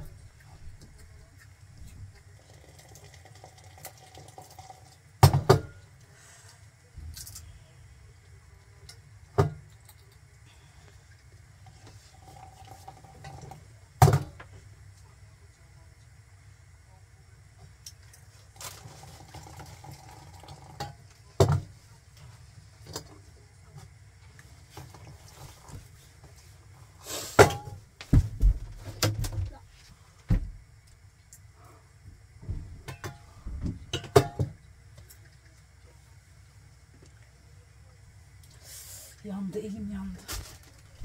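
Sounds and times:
heavy thumps: 0:27.4 - 0:29.6, 0:30.2 - 0:30.7, 0:32.1 - 0:33.9.

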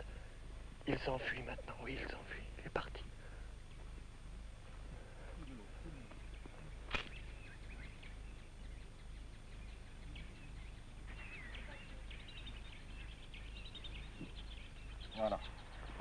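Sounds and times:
small birds chirping: 0:00.0 - 0:16.0
steady low hum: 0:00.0 - 0:16.0
sharp click: 0:06.9 - 0:07.2.

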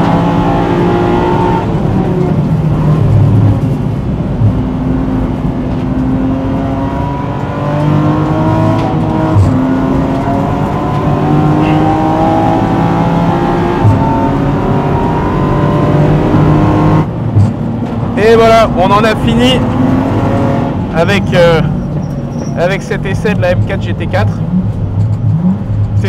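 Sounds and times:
race car engine at full throttle: 0:00.0 - 0:26.0.

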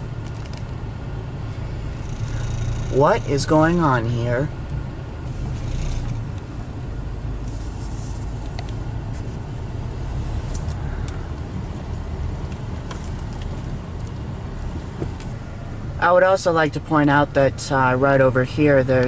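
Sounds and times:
car engine and tyre rumble: 0:00.0 - 0:19.0.

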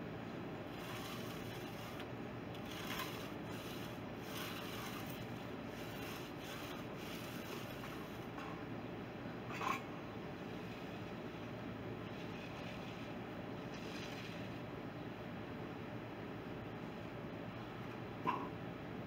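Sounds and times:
hand tool scraping concrete: 0:00.7 - 0:08.4, 0:12.1 - 0:14.6.

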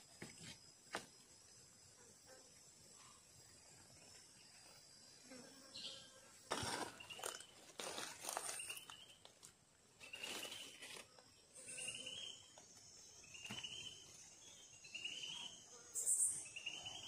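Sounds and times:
insect chirping: 0:00.0 - 0:17.0
dry leaves rustling: 0:06.5 - 0:11.1.

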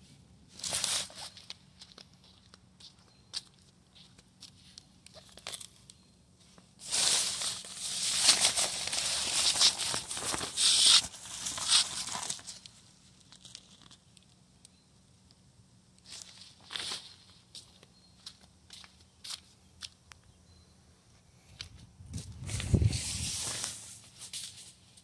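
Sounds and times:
velcro strip ripping: 0:09.4 - 0:12.2.

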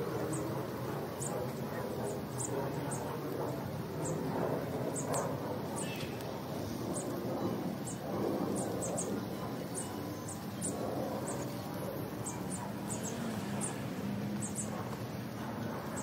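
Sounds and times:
small bird chirping: 0:07.8 - 0:14.8.

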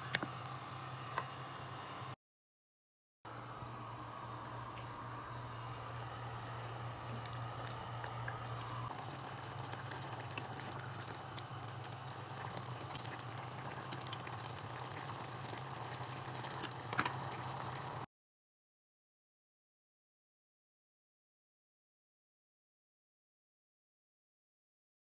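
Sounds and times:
pie filling simmering in pot: 0:03.3 - 0:18.1
steady low hum: 0:03.3 - 0:18.1.

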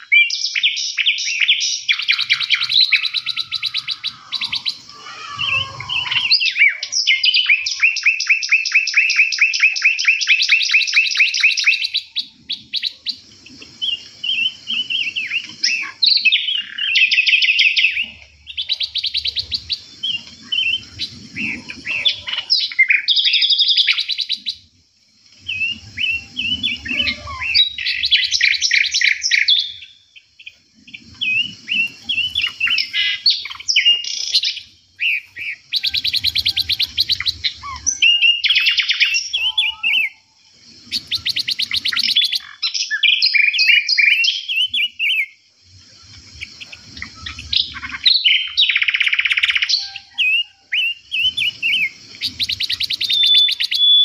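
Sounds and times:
songbirds singing and chirping: 0:00.0 - 0:54.0
bird fast trill: 0:00.5 - 0:13.1, 0:25.4 - 0:30.0, 0:31.2 - 0:40.2, 0:46.6 - 0:54.0.

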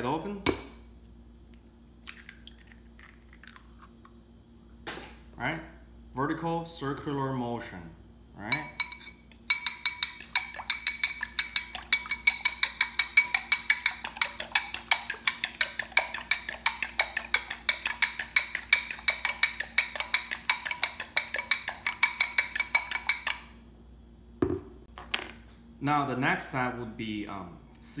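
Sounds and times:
fork clinking in ceramic bowl: 0:08.5 - 0:23.4.

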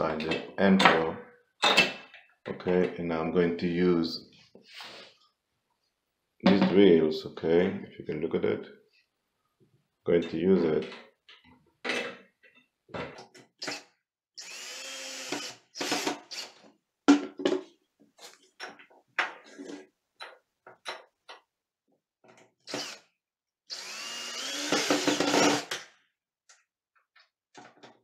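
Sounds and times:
cordless drill driving screws: 0:13.6 - 0:16.6, 0:22.6 - 0:23.0, 0:23.7 - 0:25.8.

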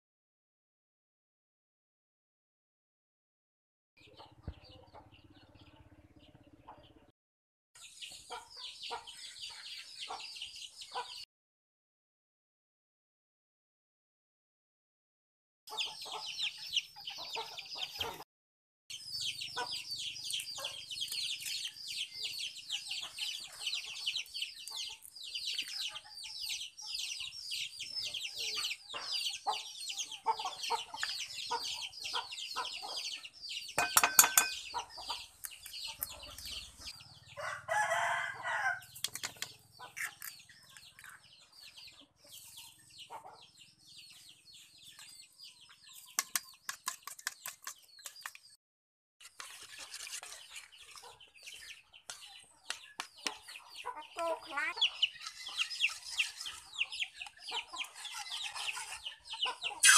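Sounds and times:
chickens clucking and chirping: 0:04.0 - 0:07.1, 0:07.8 - 0:11.3, 0:15.7 - 0:18.2, 0:18.9 - 0:48.6, 0:49.3 - 0:59.9
loud chicken call: 0:59.7 - 0:59.9.

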